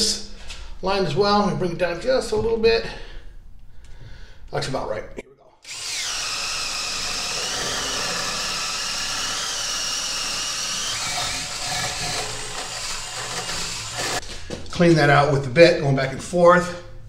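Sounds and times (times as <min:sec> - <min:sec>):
cordless drill drilling wood: 0:05.6 - 0:14.2.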